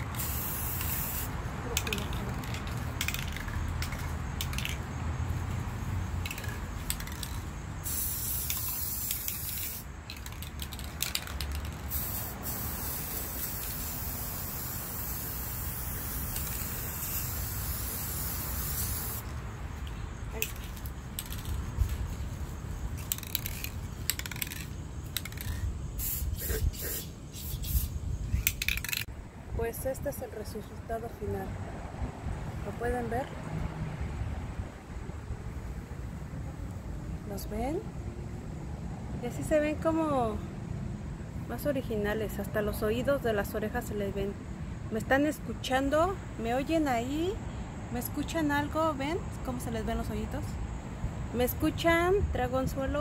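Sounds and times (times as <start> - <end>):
aerosol spray can spraying: 0.0 - 4.7, 6.3 - 19.3, 25.2 - 29.0.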